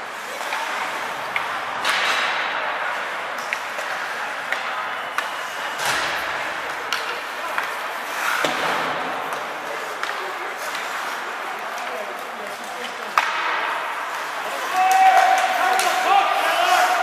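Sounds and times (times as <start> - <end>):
skate blades scraping ice: 0.0 - 13.3
hockey sticks and puck clacking: 0.0 - 17.0
spectators talking: 0.0 - 17.0.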